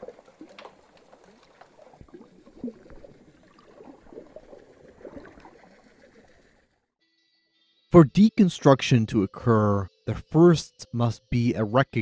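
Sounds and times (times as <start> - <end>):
faint bubbling and trickling: 0.0 - 6.8.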